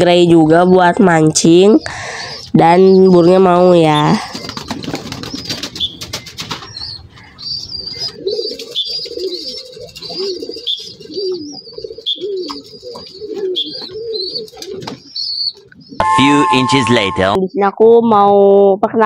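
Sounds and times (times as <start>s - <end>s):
pigeons cooing: 0.0s - 16.0s
pigeons flapping wings: 4.1s - 7.1s, 8.3s - 11.1s, 12.0s - 15.1s
thin high chirps: 16.0s - 17.4s.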